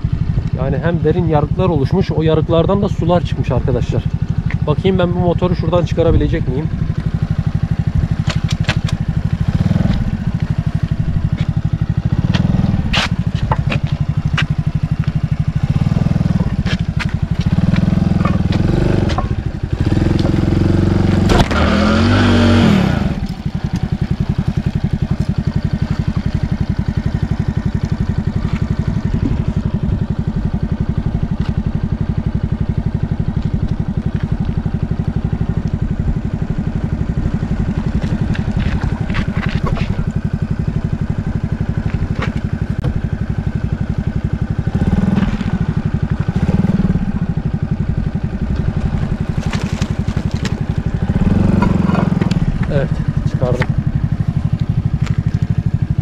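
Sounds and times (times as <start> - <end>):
motorcycle engine running: 0.0 - 56.0
clatter: 7.9 - 20.5, 30.5 - 56.0.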